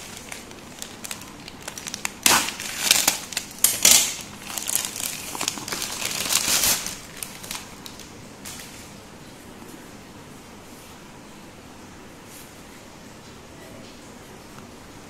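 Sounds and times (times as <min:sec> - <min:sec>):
plastic mailer bag crinkling: 0:00.0 - 0:08.9.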